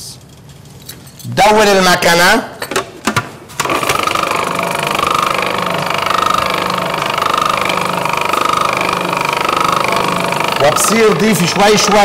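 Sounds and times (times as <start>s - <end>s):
food processor motor running: 3.6s - 12.0s.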